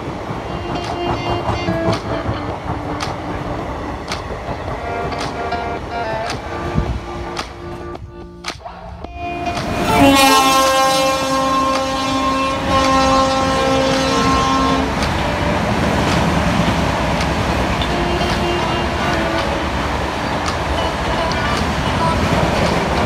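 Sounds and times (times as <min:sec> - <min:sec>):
train horn blast: 0:00.0 - 0:04.0, 0:09.3 - 0:23.0
train running: 0:00.0 - 0:23.0
clicks: 0:17.1 - 0:19.7, 0:20.3 - 0:22.0.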